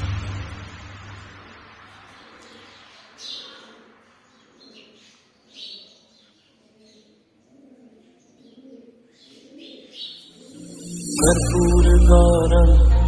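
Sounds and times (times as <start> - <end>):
devotional chant music with bass: 0.0 - 1.5, 10.4 - 13.0.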